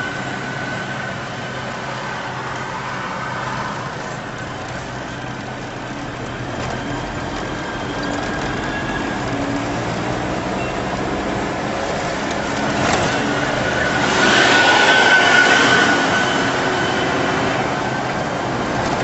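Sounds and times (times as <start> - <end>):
tyre and road noise: 0.0 - 19.0.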